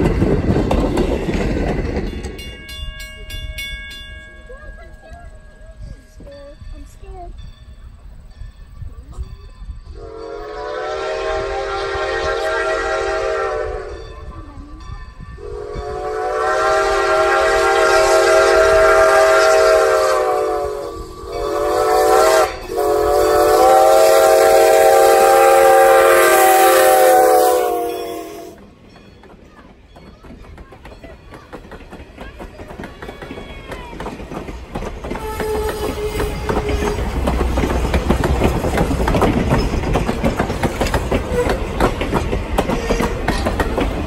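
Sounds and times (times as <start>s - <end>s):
steam whistle blasts: 9.9s - 14.0s, 15.4s - 28.6s, 35.2s - 37.0s.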